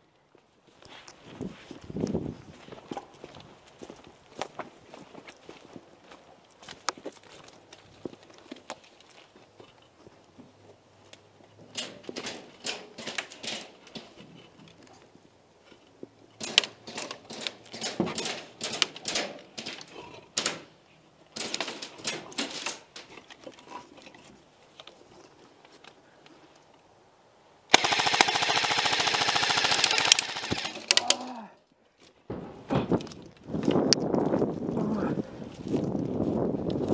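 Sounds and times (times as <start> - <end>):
airsoft guns firing: 27.7 - 31.1.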